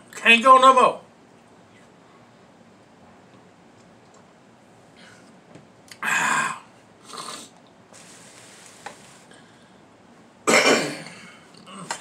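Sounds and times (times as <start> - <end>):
man burping: 5.9 - 6.7, 10.5 - 12.0.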